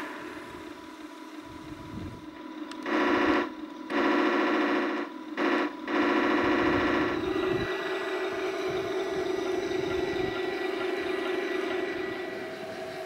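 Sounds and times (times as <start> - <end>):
electronic tank sound effects: 2.8 - 13.0.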